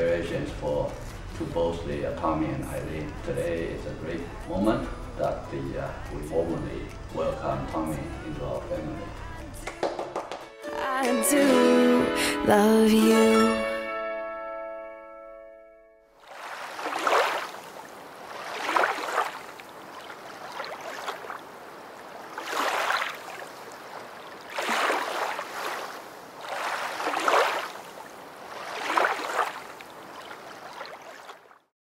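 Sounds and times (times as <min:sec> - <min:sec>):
waves breaking on shore: 0:16.2 - 0:31.7.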